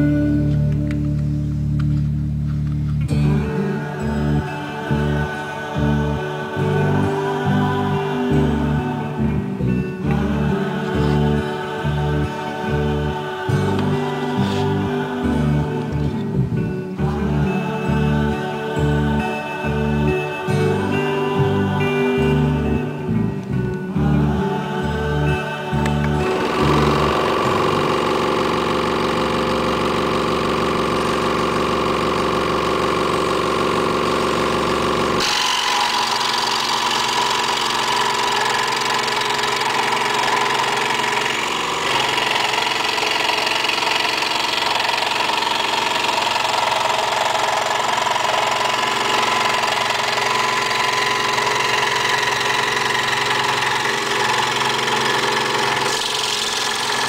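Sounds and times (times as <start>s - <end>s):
scroll saw running: 10.5s - 16.2s, 25.5s - 57.0s
saw blade cutting plywood: 35.1s - 57.0s.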